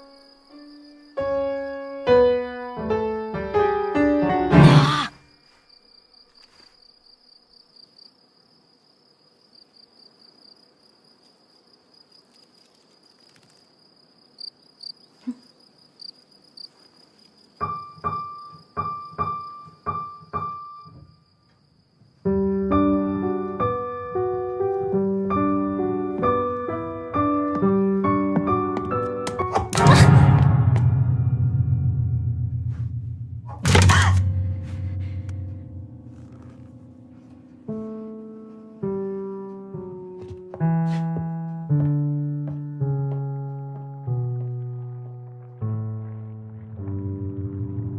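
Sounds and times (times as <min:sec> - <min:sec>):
piano notes and chords: 0:00.0 - 0:05.0, 0:17.6 - 0:21.2, 0:22.2 - 0:47.9
high insect trill: 0:00.0 - 0:27.3.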